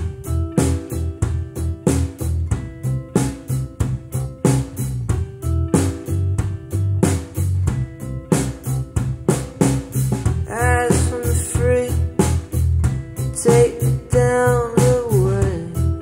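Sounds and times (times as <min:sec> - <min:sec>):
song with drums bass and guitar: 0:00.0 - 0:16.0
person singing: 0:10.4 - 0:12.5, 0:13.2 - 0:16.0.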